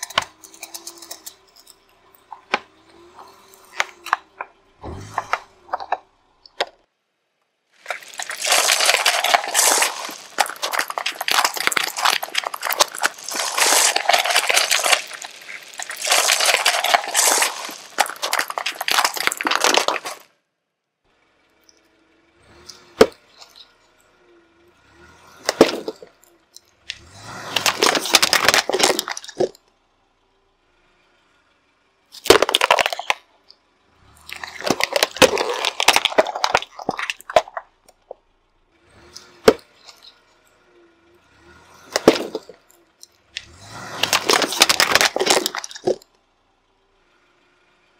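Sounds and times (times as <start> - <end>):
tyre crushing plastic and sweets: 0.0 - 6.8, 7.8 - 20.4, 25.4 - 26.2, 26.9 - 29.6, 32.2 - 33.2, 34.2 - 38.2, 41.8 - 42.7, 43.4 - 46.0
plastic tubs cracking: 0.0 - 6.9, 7.8 - 20.3, 25.4 - 26.2, 26.9 - 29.6, 32.2 - 33.2, 34.2 - 38.2, 39.3 - 40.1, 41.8 - 46.0.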